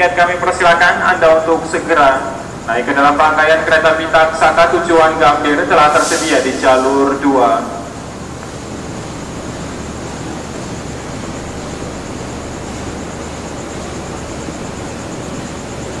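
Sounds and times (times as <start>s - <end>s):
train carriages rolling past: 0.0s - 16.0s.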